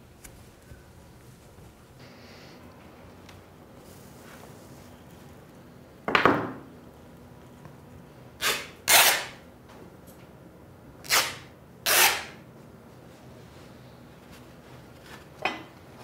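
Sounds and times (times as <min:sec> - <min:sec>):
thin material tearing by hand: 0:08.4 - 0:09.4, 0:11.0 - 0:12.4.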